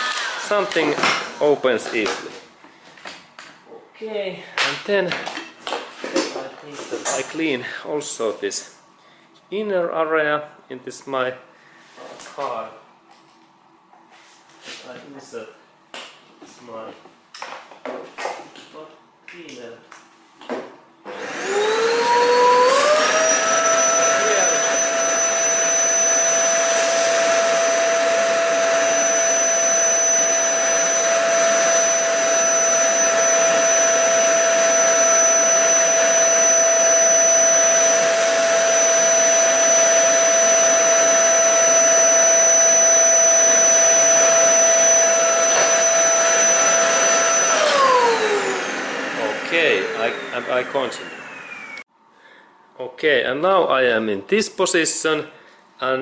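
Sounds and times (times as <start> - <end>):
vacuum cleaner motor whine: 0.0 - 1.5, 21.1 - 51.9.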